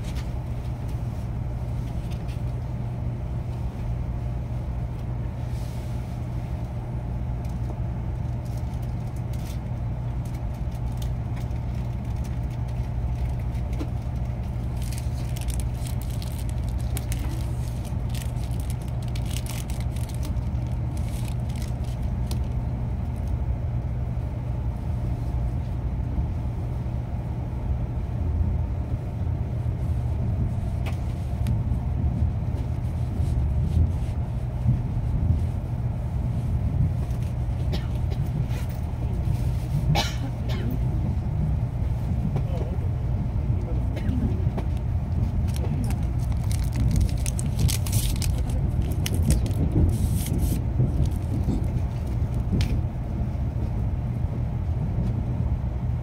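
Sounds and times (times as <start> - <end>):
train rumble inside cabin: 0.0 - 56.0
faint clicks and rustles: 44.4 - 52.8.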